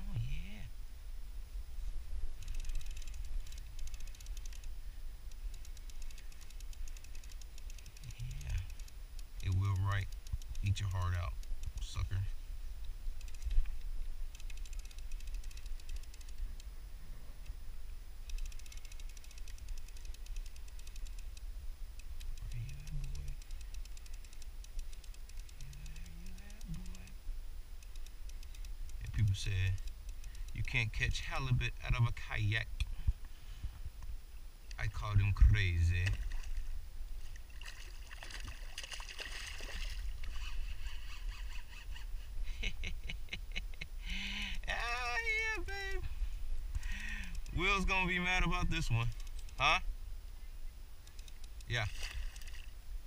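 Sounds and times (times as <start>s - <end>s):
fishing reel clicking: 2.4s - 11.9s, 13.2s - 16.7s, 18.2s - 27.2s, 27.8s - 30.6s, 40.0s - 42.1s, 51.1s - 52.7s
water splashing around kayak: 36.1s - 40.6s, 51.9s - 52.7s.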